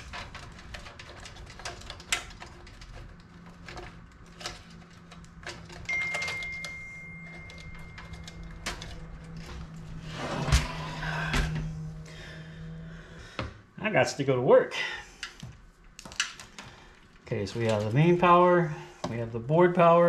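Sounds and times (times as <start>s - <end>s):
cables and connectors clicking: 0.0s - 10.0s, 15.2s - 18.2s.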